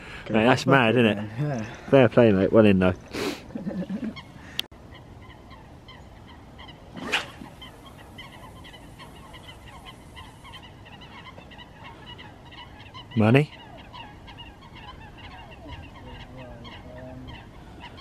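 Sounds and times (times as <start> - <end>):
geese honking in the distance: 4.0 - 18.0.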